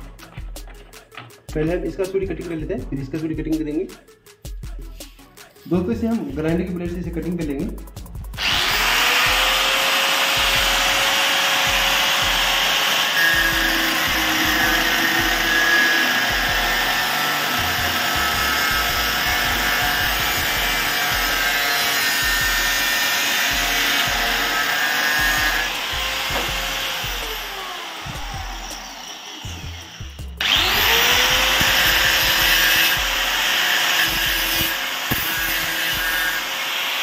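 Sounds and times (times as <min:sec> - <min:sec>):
angle grinder cutting metal: 0:08.4 - 0:37.0.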